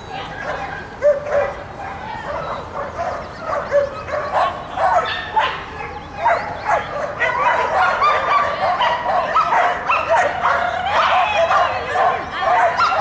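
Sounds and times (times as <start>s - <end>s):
dog barking and yipping: 0.2s - 13.0s.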